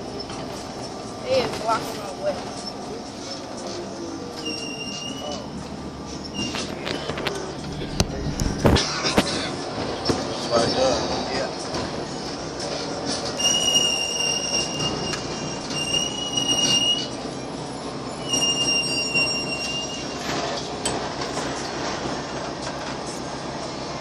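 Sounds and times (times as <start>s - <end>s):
bus running noise: 0.0s - 24.0s
bus brakes squealing: 2.4s - 7.6s, 8.7s - 11.4s, 12.0s - 21.8s.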